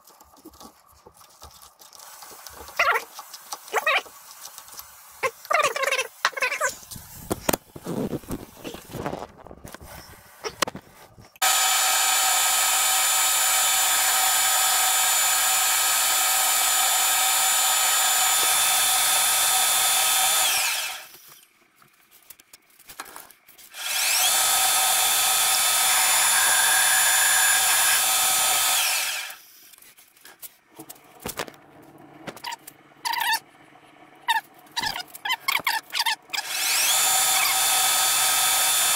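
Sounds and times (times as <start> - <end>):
metal lathe whining: 11.4 - 21.2, 23.8 - 29.4, 36.4 - 38.9.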